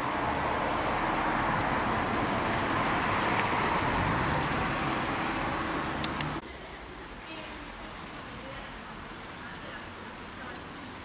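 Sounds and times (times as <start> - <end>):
car passing: 0.0 - 6.4.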